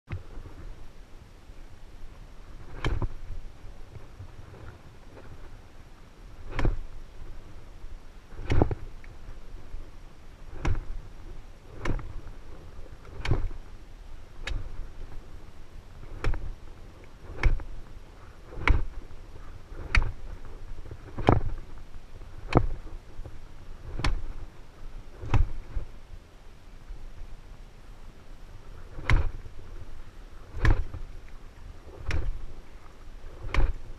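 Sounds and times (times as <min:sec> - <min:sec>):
axe chopping wood: 0:02.7 - 0:03.2, 0:06.5 - 0:06.9, 0:08.3 - 0:08.8, 0:10.5 - 0:11.0, 0:11.7 - 0:12.2, 0:13.1 - 0:13.6, 0:14.4 - 0:14.9, 0:16.0 - 0:16.6, 0:17.2 - 0:17.7, 0:18.5 - 0:19.1, 0:19.7 - 0:20.3, 0:21.0 - 0:21.6, 0:22.4 - 0:22.9, 0:23.8 - 0:24.4, 0:25.2 - 0:25.8, 0:28.9 - 0:29.4, 0:30.5 - 0:31.0, 0:31.9 - 0:32.5, 0:33.3 - 0:33.8.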